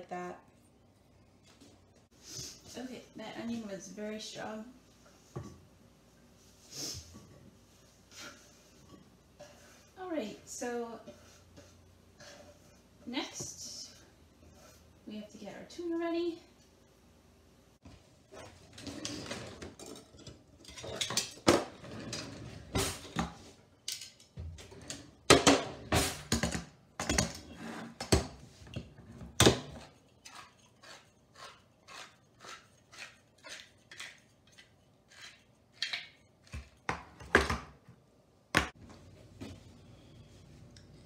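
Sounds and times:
metal utensils clattering: 18.7 - 22.6.

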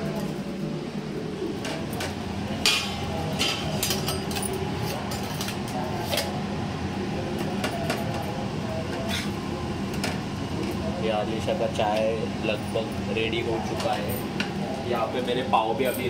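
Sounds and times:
range hood fan humming: 0.0 - 16.0
steel pots and plates clinking: 2.0 - 5.6.

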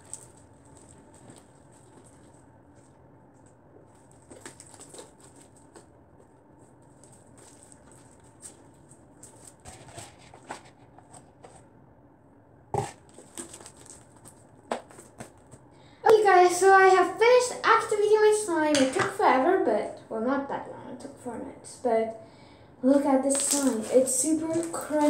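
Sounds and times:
slime crunching and crackling: 0.0 - 6.0, 6.8 - 10.2, 23.1 - 25.0.

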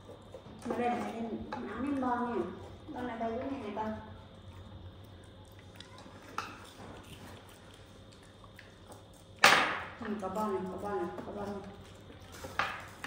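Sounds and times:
monkey eating clicks: 4.8 - 9.4.

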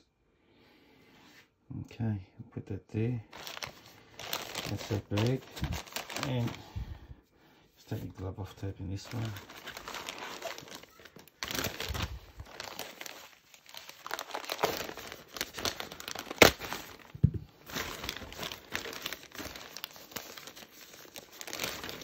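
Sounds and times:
package crinkling and tearing: 3.3 - 6.8, 9.0 - 22.0.

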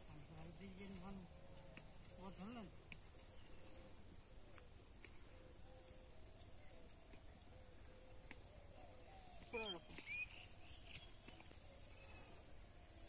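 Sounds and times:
leaves picked by hand clicks: 0.2 - 3.7, 4.4 - 6.2, 7.0 - 7.4, 8.0 - 8.5, 9.3 - 11.9.

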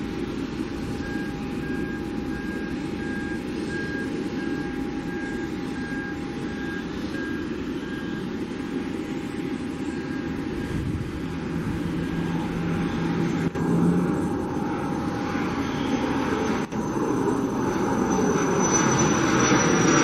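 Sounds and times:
jet engines at takeoff: 0.0 - 20.0
short beeps: 1.0 - 8.3.

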